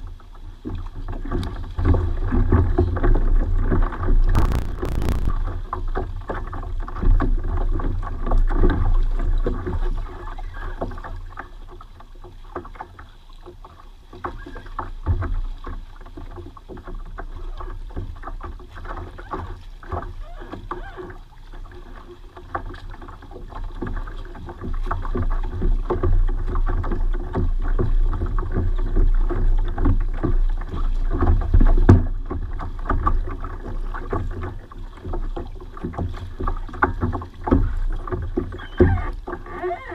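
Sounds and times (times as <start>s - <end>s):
water slapping against kayak hull: 0.0s - 39.9s
low rumble: 4.3s - 5.4s.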